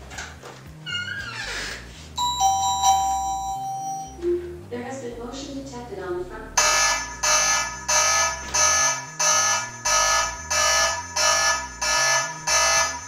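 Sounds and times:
pulsing siren alarm: 6.6 - 13.0.

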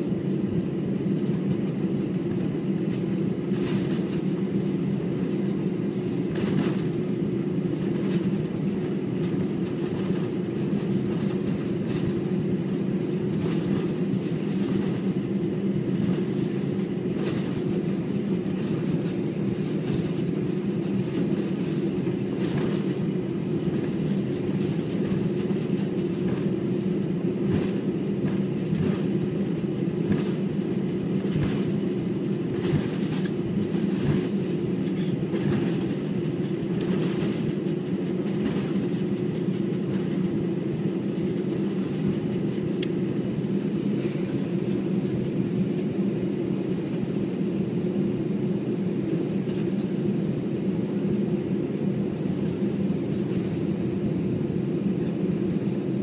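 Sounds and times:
jet engines droning: 0.0 - 56.0
wheels thumping over taxiway: 7.7 - 45.9.

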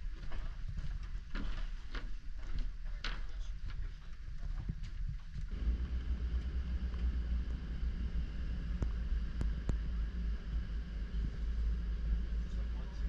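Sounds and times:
boat motor running: 5.5 - 13.0.

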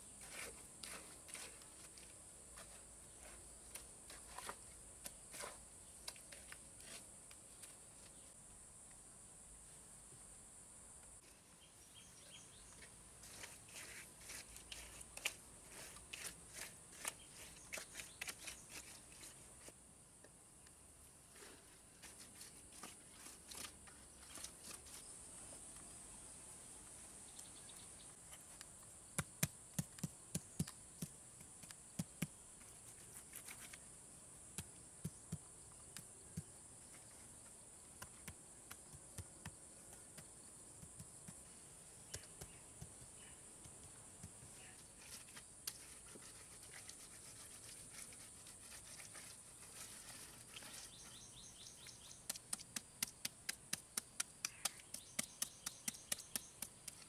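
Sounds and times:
trowel tapping and scraping: 12.8 - 19.8, 52.2 - 57.0.

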